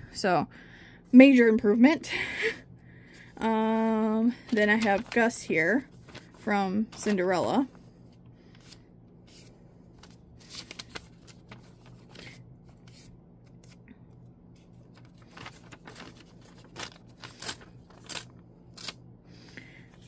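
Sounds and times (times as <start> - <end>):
paper rustling and crinkling: 3.7 - 13.8, 14.5 - 19.0.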